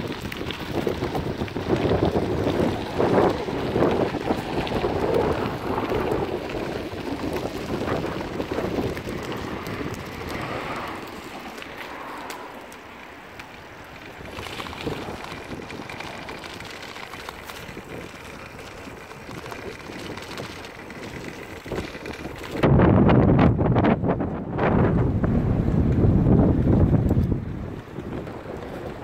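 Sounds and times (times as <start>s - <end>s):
tyres rattling on paving stones: 0.0s - 22.8s
bicycle tyres crunching over gravel: 0.0s - 25.0s, 25.6s - 29.0s
wind buffeting microphone: 0.0s - 29.0s.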